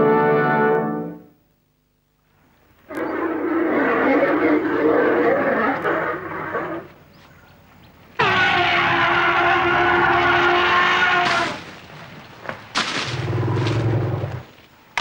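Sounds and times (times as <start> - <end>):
elephant trumpeting: 2.9 - 7.0, 8.2 - 11.8.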